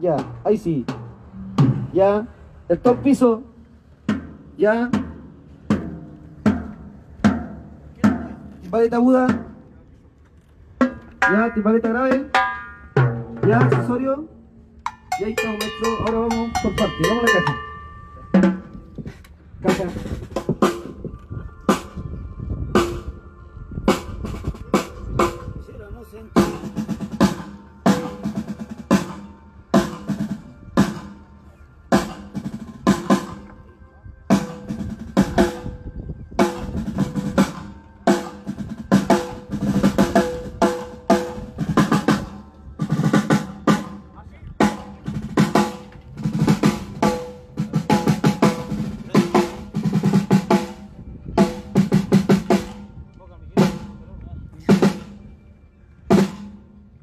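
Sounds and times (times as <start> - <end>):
snare drum strokes and rolls: 26.4 - 31.2, 36.4 - 52.9, 56.1 - 56.6.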